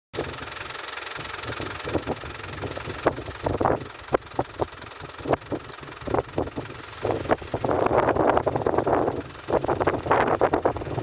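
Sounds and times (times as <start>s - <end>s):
off-road engine revving: 0.2s - 11.0s.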